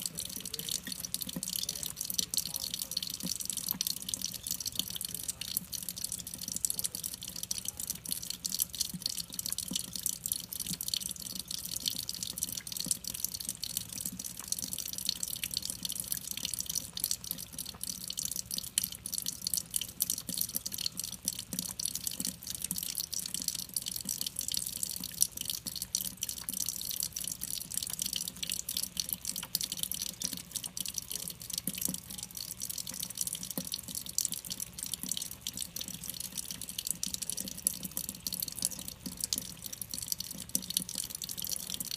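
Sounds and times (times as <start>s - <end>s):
water drips pattering: 0.0s - 41.9s
water running from faucet into sink: 0.0s - 41.9s.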